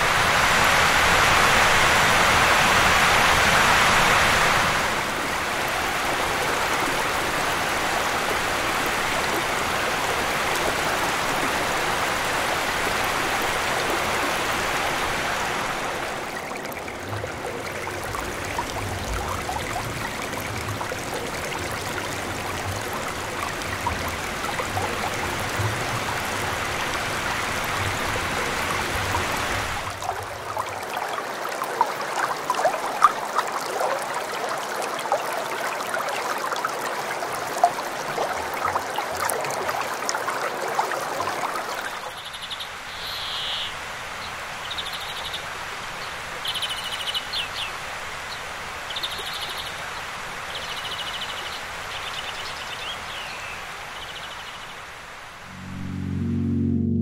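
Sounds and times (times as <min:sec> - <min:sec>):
river water rushing over cobbles: 0:00.0 - 0:42.9.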